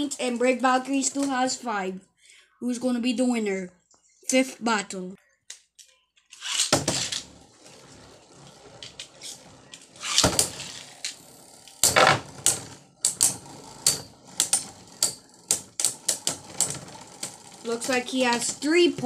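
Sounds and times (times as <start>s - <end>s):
spinning tops whirring: 6.4s - 19.0s.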